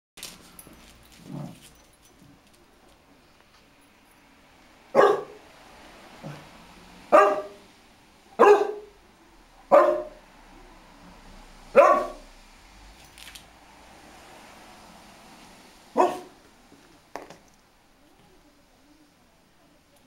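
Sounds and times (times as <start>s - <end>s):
dog barking: 4.9s - 5.4s, 7.1s - 7.6s, 8.4s - 9.0s, 9.7s - 10.2s, 11.7s - 12.2s, 16.0s - 16.4s.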